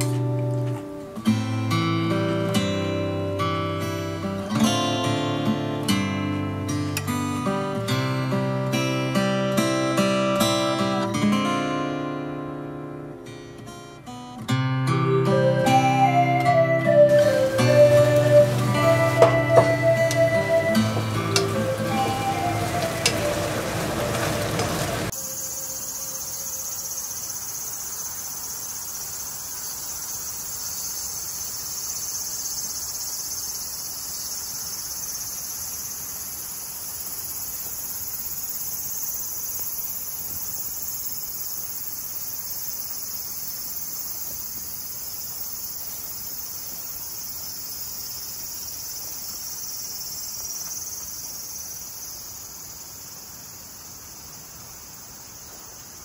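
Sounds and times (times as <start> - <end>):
music: 0.0 - 26.1
insects chirring: 0.0 - 56.0.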